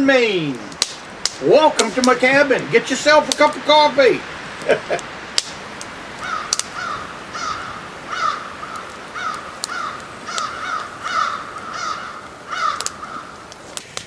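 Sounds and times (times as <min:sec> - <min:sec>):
crows cawing: 0:06.1 - 0:13.6.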